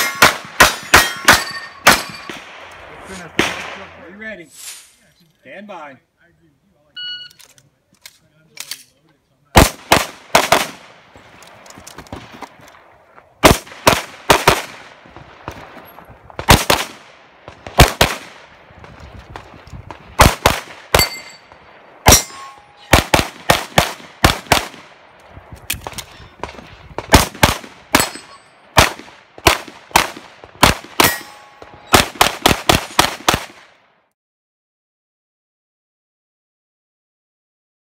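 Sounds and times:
steel targets ringing: 0.0s - 2.4s, 21.0s - 21.5s, 22.1s - 22.9s, 28.0s - 28.6s, 31.0s - 32.0s
pistol gunshots: 0.0s - 4.0s, 9.5s - 11.2s, 13.4s - 15.8s, 16.4s - 25.0s, 25.8s - 33.7s.

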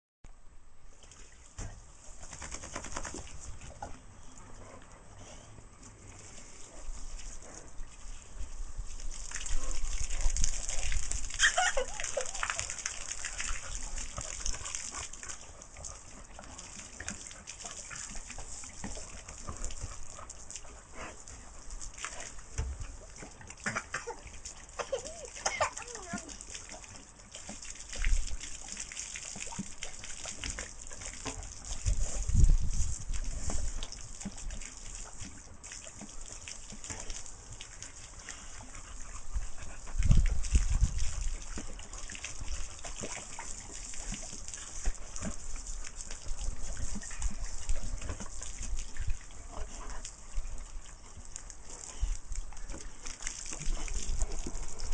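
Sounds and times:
hose water splattering on paving: 1.0s - 3.9s, 5.8s - 54.9s
child squealing: 11.4s - 12.1s.

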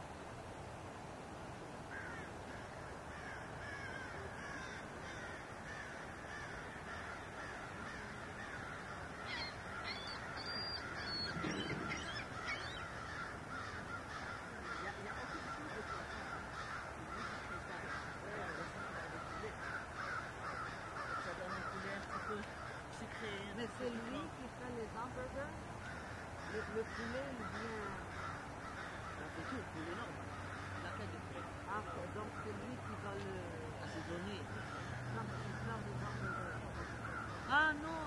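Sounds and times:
steady hiss: 0.0s - 30.8s
flock of birds calling: 1.9s - 38.0s
high whistled bird calls: 9.3s - 12.9s.

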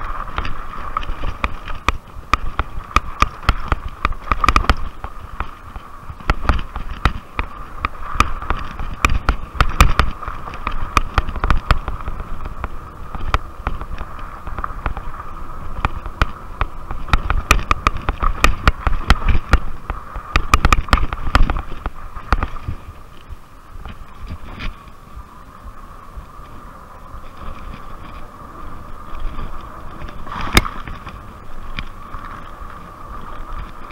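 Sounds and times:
bike frame rattling and knocking: 0.0s - 15.1s, 15.7s - 22.8s.

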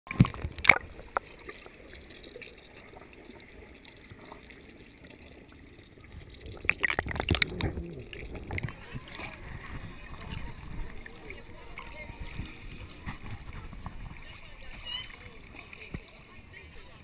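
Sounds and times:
muffled underwater water rumble: 0.1s - 17.0s
splashes: 0.1s - 17.0s
underwater knocks: 6.6s - 11.0s.

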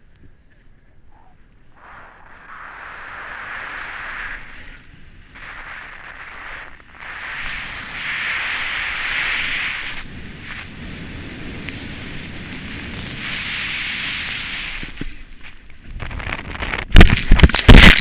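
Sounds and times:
wind rumble on microphone: 0.0s - 18.0s
snowboard scraping on snow: 2.3s - 16.6s.

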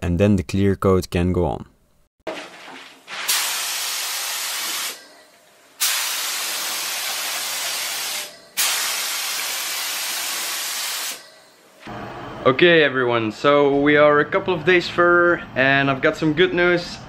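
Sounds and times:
paint spray gun hissing: 3.2s - 5.0s, 5.8s - 11.2s.

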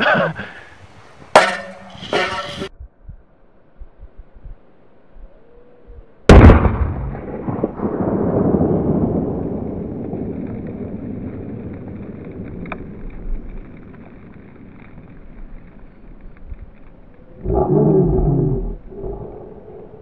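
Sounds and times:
long rumble: 2.8s - 20.0s
firecracker blast: 6.3s - 15.3s.

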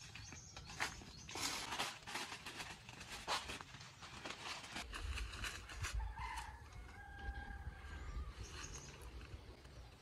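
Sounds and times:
footsteps crunching dry leaves: 0.0s - 9.3s
rooster crowing: 6.0s - 8.4s.

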